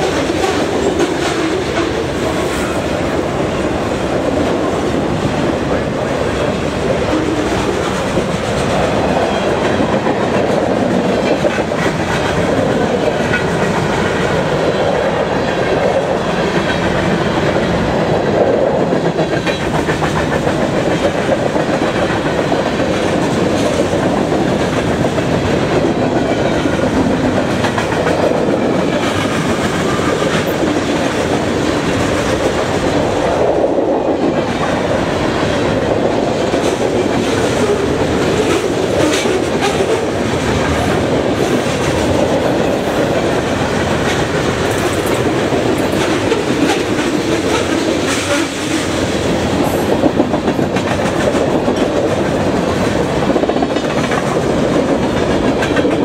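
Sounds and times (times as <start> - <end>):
freight train wheels rumbling on rail: 0.0 - 56.0.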